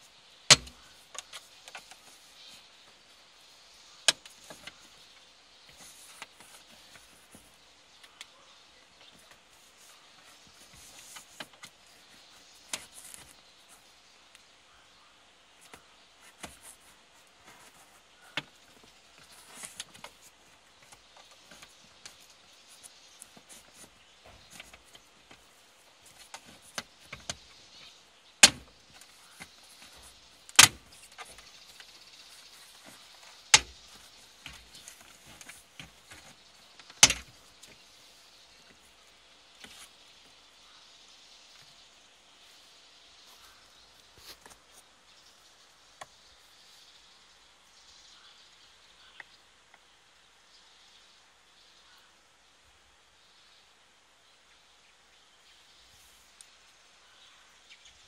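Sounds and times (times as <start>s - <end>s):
plastic clips snapping: 28.4s - 31.9s, 34.4s - 37.3s.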